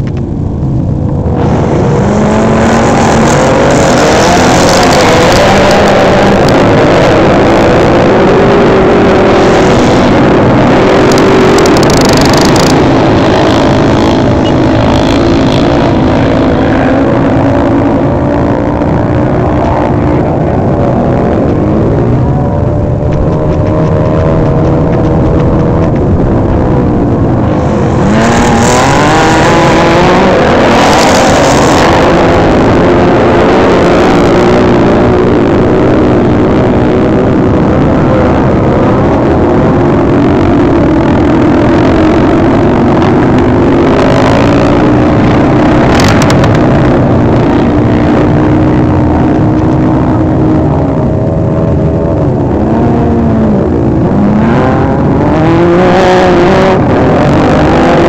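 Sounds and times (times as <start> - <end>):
motorcycle engines revving: 0.0 - 58.0.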